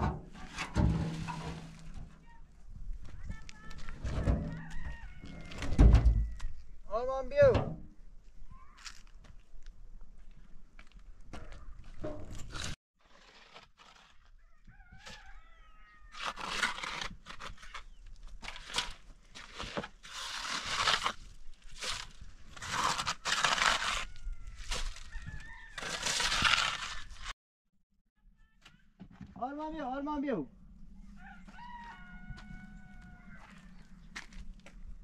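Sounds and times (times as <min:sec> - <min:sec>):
metal scoop scraping gritty material: 0:00.0 - 0:02.3, 0:12.2 - 0:14.4, 0:16.1 - 0:25.1, 0:25.7 - 0:27.3
rooster crowing: 0:04.3 - 0:06.5, 0:14.4 - 0:16.2, 0:24.0 - 0:26.1, 0:31.1 - 0:33.9.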